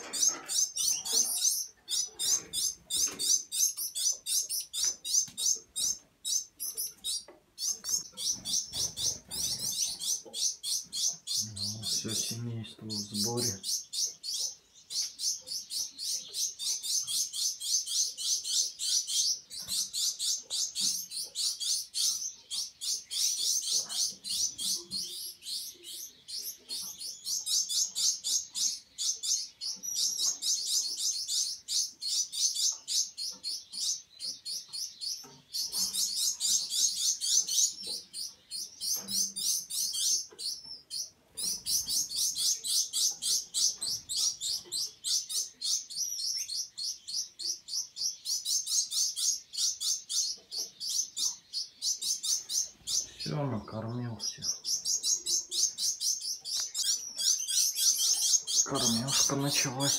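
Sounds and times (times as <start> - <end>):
finches chirping: 0.0 - 59.9.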